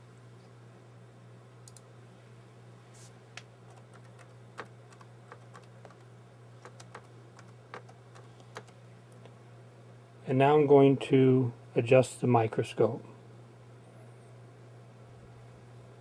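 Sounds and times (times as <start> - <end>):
steady low hum: 0.0 - 16.0
keyboard key clicks: 6.6 - 8.8.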